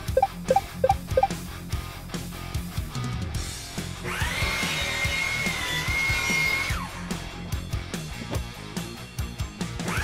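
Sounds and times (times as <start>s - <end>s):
background music with beat: 0.0s - 1.4s.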